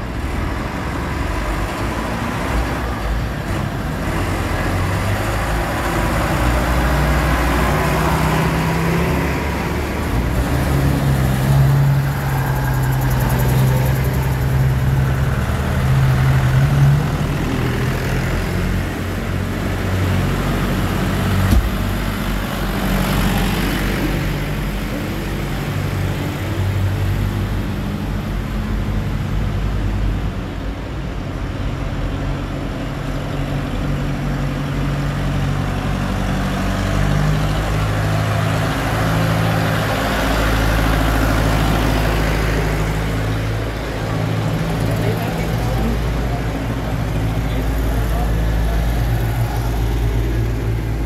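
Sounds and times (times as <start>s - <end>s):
old vehicle engines: 0.0s - 51.0s
tractor diesel engine: 0.0s - 51.0s
deep engine hum: 20.4s - 23.7s.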